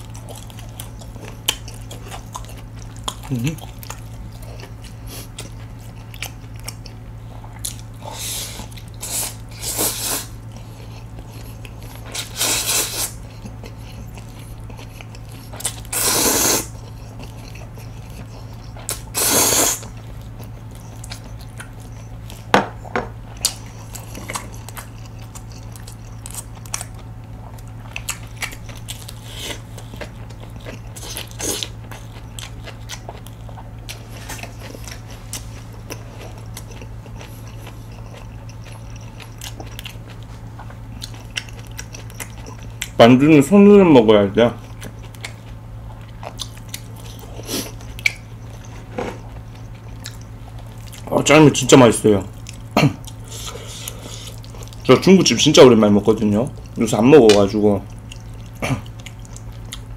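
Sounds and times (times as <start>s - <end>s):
chewing with wet smacks: 0.0s - 9.6s, 10.3s - 16.0s, 16.6s - 19.2s, 19.8s - 59.9s
steady low hum: 0.0s - 59.9s
noodles slurped: 15.9s - 16.8s, 18.8s - 19.9s.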